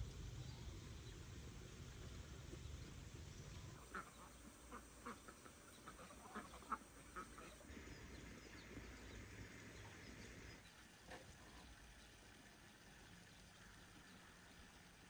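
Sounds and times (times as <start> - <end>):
ducks quacking: 3.8 - 7.7.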